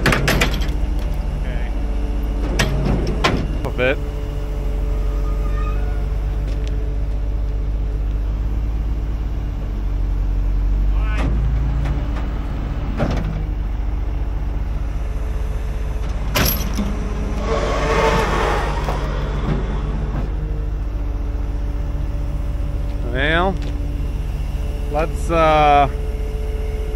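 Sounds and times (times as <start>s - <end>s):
diesel truck engine idling: 0.0s - 26.9s.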